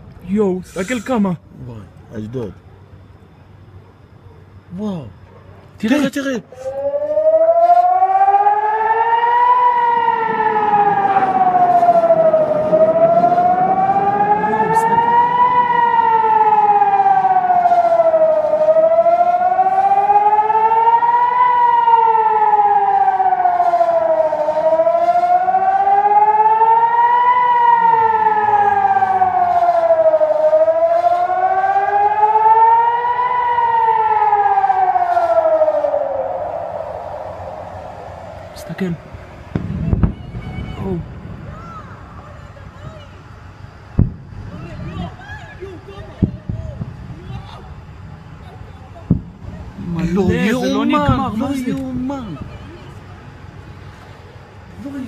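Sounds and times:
air-raid siren wailing: 2.4s - 55.0s.

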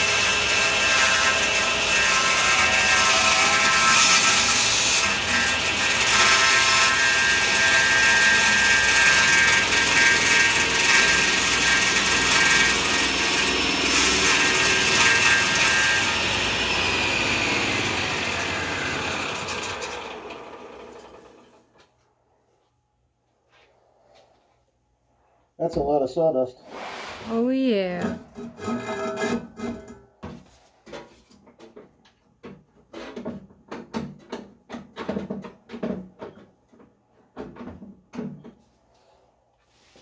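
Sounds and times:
table saw cutting with high whine: 0.0s - 21.6s.

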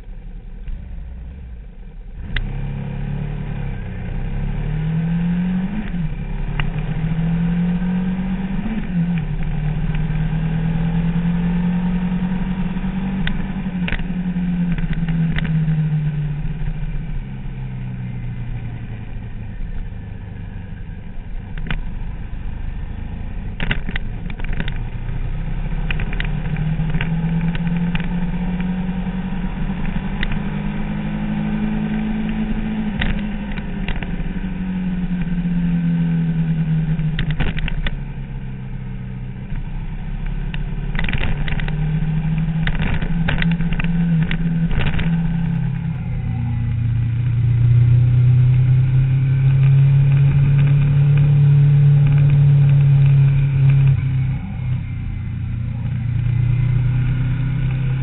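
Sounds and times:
motorcycle engine at speed: 0.0s - 58.0s
sharp clicks and knocks: 13.2s - 15.6s, 21.5s - 22.0s, 23.5s - 25.0s, 25.8s - 28.7s, 29.8s - 30.5s, 32.2s - 34.4s, 37.0s - 38.1s, 39.4s - 46.2s, 50.1s - 51.3s, 52.0s - 54.3s.

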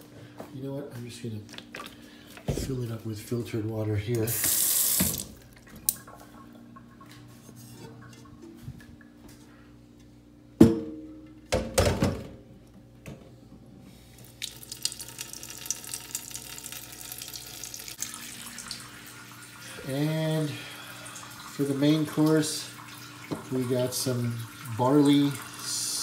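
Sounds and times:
water running into pot: 14.2s - 26.0s.

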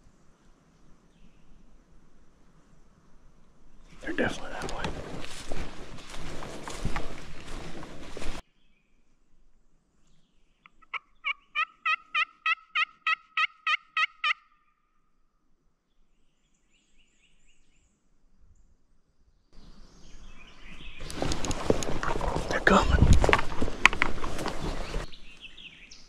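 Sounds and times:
turkey yelping: 10.8s - 14.7s.

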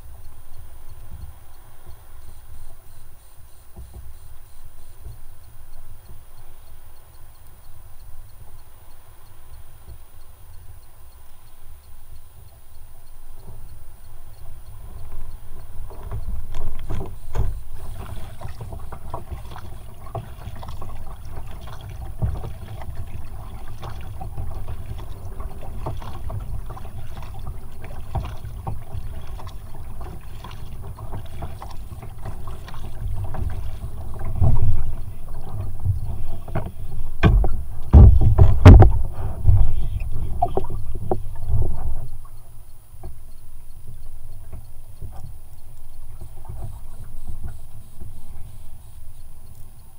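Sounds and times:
paddle splashing and dripping: 0.0s - 49.9s
water lapping hull: 0.0s - 49.9s
wind on microphone: 14.2s - 42.5s
knocks and thumps: 15.9s - 42.0s.

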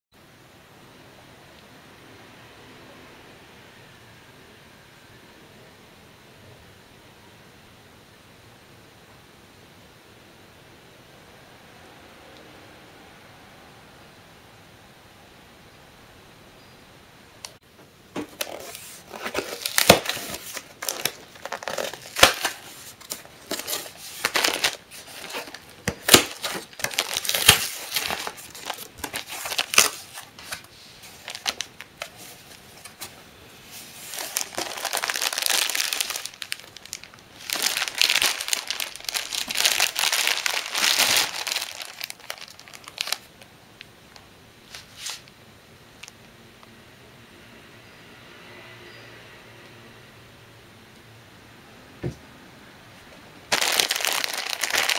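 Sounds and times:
cardboard snapping and ripping: 18.2s - 30.6s, 53.5s - 54.9s
plastic shrink-wrap crinkling: 18.2s - 33.1s, 33.7s - 43.4s, 53.5s - 54.9s.

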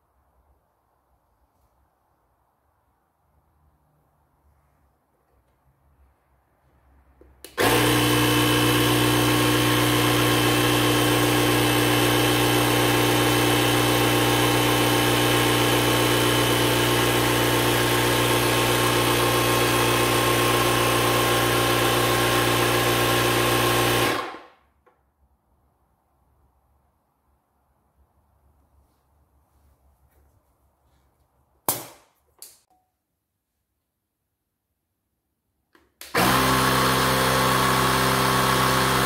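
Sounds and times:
tyre inflator humming: 7.4s - 24.4s, 36.0s - 39.0s.

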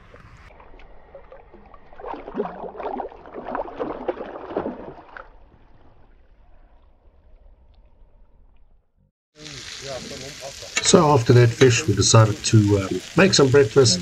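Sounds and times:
water splashing and sloshing: 0.0s - 8.6s.

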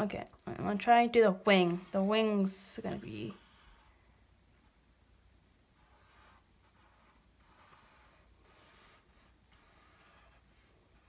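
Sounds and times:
pencil scratching on paper: 1.3s - 3.9s, 5.4s - 11.0s.

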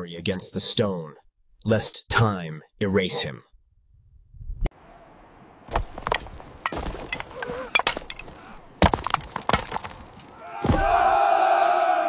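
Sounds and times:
hooves clacking on rock: 5.7s - 10.4s
crowd of men shouting: 10.3s - 12.0s.

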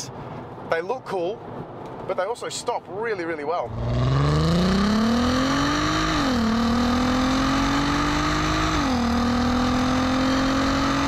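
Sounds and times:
car engine accelerating: 3.7s - 11.0s.

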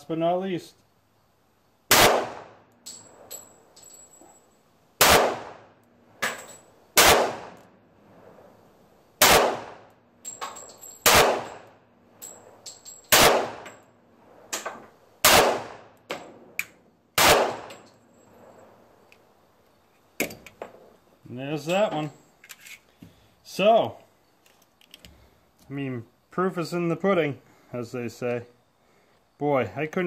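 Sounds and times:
pistol shots: 1.9s - 2.6s, 5.0s - 6.4s, 7.0s - 7.6s, 9.2s - 9.9s, 11.0s - 11.7s, 13.1s - 13.7s, 14.5s - 16.3s, 17.2s - 17.8s
metallic clicks and clinks: 2.7s - 4.6s, 6.2s - 6.7s, 10.2s - 11.1s, 12.1s - 13.8s, 21.6s - 22.9s.

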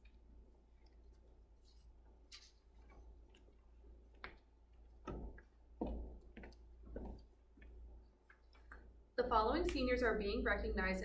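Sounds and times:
footsteps: 1.6s - 8.9s.

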